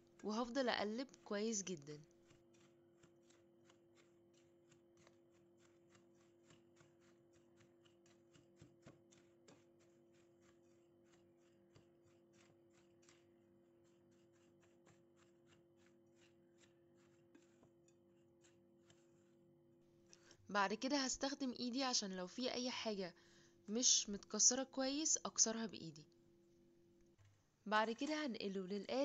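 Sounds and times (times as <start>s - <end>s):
spatula scraping crumbs in a bowl: 0.0s - 19.7s.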